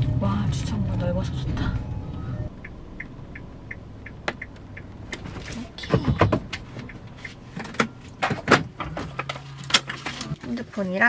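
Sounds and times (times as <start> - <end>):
low engine hum: 0.0 - 10.5
clicks and knocks of car controls: 2.6 - 10.6.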